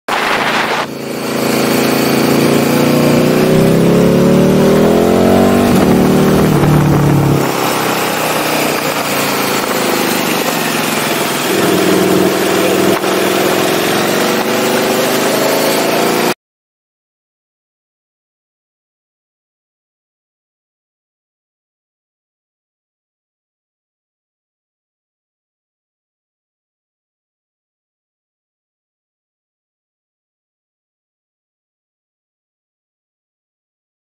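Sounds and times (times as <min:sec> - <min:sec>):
wind rush on microphone: 0:00.1 - 0:00.9
motorcycle engine revving: 0:00.1 - 0:16.4.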